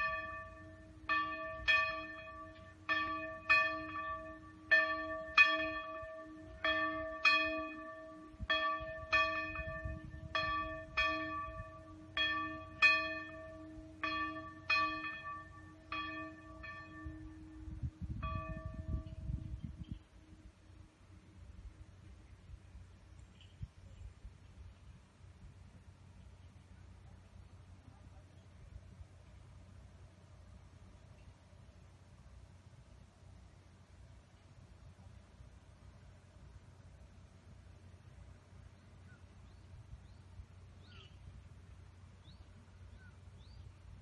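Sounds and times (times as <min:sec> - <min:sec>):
church bell ringing: 0:00.0 - 0:19.6.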